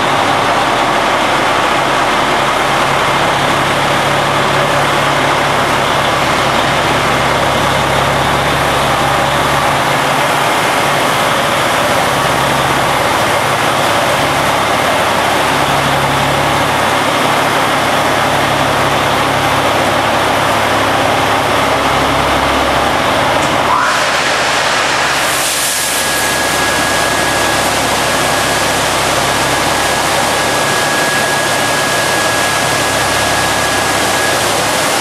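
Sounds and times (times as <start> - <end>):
truck engine running: 0.0 - 23.7, 26.0 - 35.0
high-pressure water jets spraying: 23.7 - 35.0.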